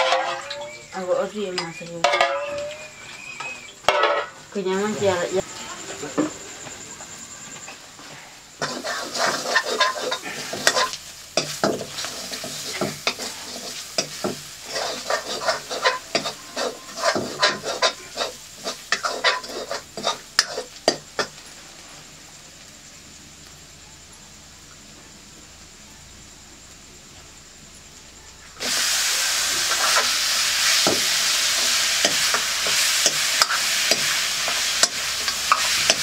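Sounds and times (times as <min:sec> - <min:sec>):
metal ladle scraping a wok: 0:00.0 - 0:00.6, 0:08.6 - 0:20.8
food sizzling in hot oil: 0:00.0 - 0:36.0.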